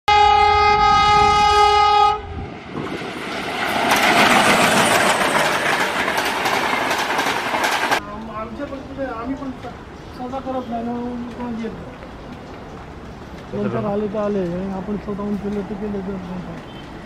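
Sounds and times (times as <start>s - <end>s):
train horn blast: 0.1s - 2.5s
train wheels clattering: 2.8s - 8.0s.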